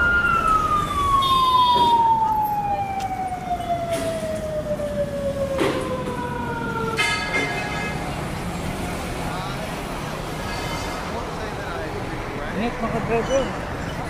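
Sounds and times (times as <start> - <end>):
siren winding down: 0.0 - 7.0
street traffic: 0.0 - 14.0.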